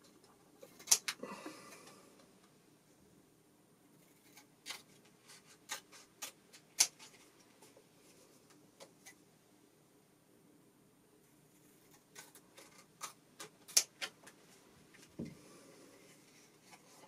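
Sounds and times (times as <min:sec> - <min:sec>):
scissors snipping laminated sheet: 0:04.1 - 0:07.1.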